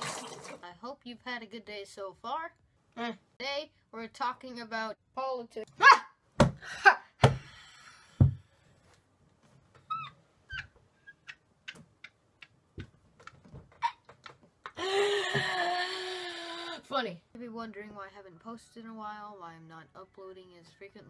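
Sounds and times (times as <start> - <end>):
boy's cringing vocal noises: 14.8 - 16.9.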